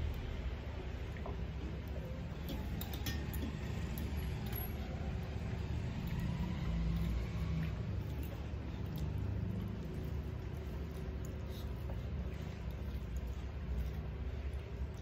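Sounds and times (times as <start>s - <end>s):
metallic clinks on steel plates: 2.5s - 4.8s.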